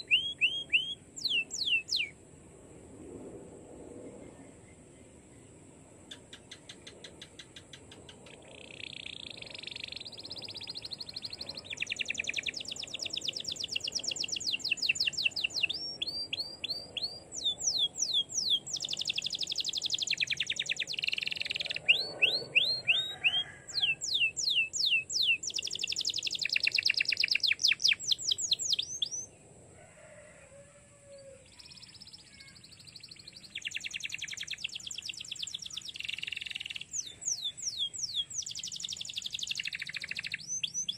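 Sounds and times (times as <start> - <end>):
canary singing trills: 0.0 - 2.2, 6.1 - 29.3, 31.2 - 40.9.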